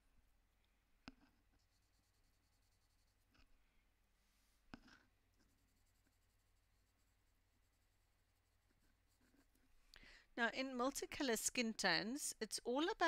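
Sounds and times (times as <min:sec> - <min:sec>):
pencil scratching on paper: 0:01.1 - 0:03.5, 0:04.8 - 0:09.7.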